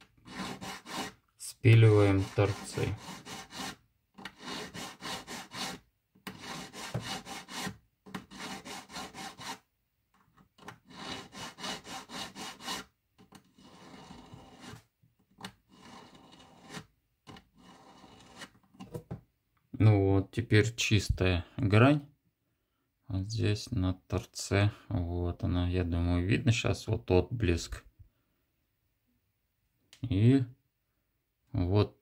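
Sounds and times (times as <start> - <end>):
needle file rasping on metal: 0.0 - 9.6, 10.8 - 14.9, 15.7 - 18.6.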